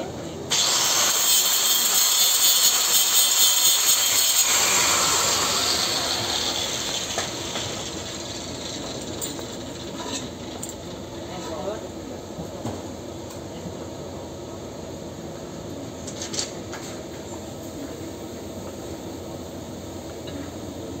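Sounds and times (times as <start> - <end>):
angle grinder grinding metal: 0.5 - 10.4.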